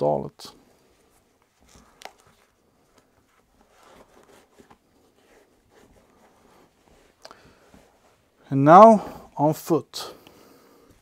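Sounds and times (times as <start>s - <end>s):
soft rustles and scuffs: 0.6s - 9.3s.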